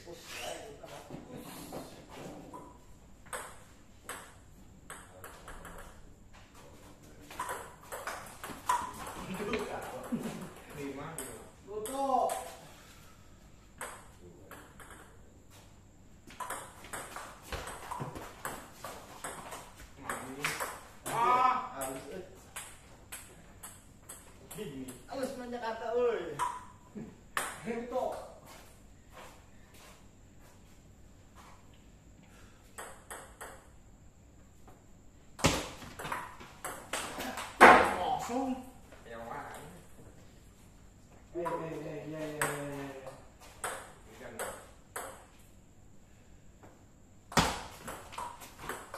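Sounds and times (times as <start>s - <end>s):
table tennis ball hits and bounces: 2.5s - 6.0s, 7.3s - 10.4s, 11.1s - 12.6s, 13.8s - 15.2s, 16.2s - 25.1s, 26.4s - 28.4s, 32.7s - 33.8s, 35.4s - 38.3s, 42.4s - 45.4s, 47.3s - 48.9s.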